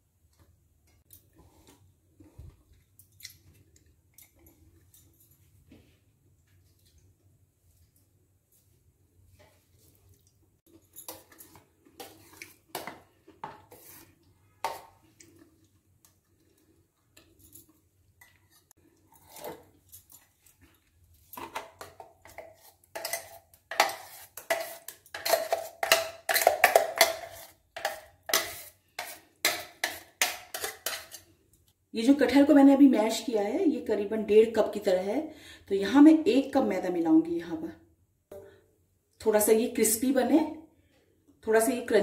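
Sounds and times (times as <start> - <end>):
metal spoon scraping metal jar: 21.4 - 31.3.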